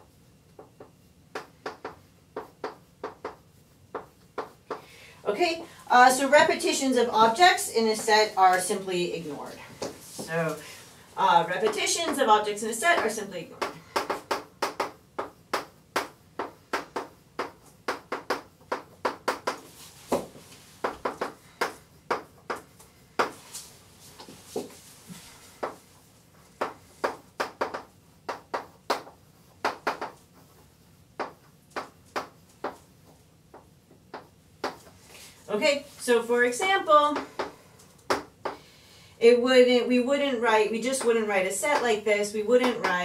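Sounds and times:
chalk tapping on blackboard: 0.5s - 4.9s, 11.6s - 23.4s, 25.6s - 25.8s, 26.5s - 35.0s, 37.1s - 38.6s.

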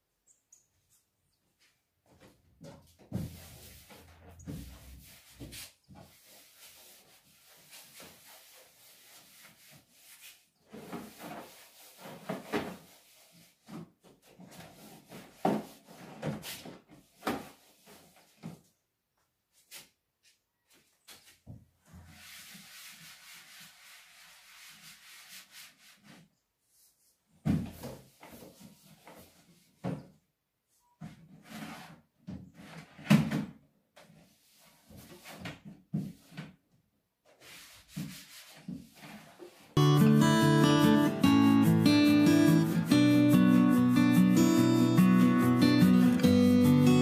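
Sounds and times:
cloth wiping wooden shelves: 2.9s - 18.4s, 20.7s - 29.8s, 34.2s - 36.4s, 37.2s - 39.8s.

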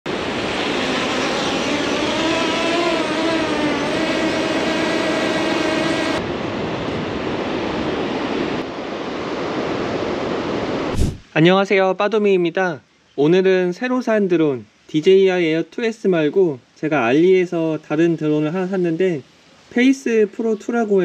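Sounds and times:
drone propellers whining: 0.1s - 6.2s
steady rushing noise: 0.1s - 11.4s.

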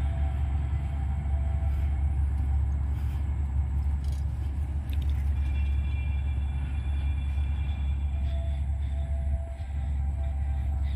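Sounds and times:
low road travel rumble: 0.0s - 10.9s.

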